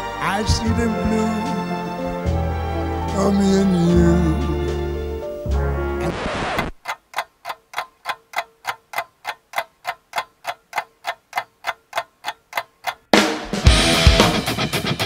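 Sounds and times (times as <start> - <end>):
ticking clicks: 6.8 - 13.1
electric guitar rock music: 13.5 - 15.0.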